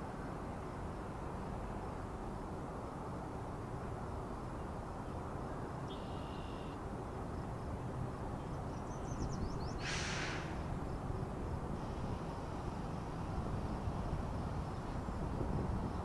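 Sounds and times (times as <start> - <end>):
brief hiss: 9.8 - 10.7.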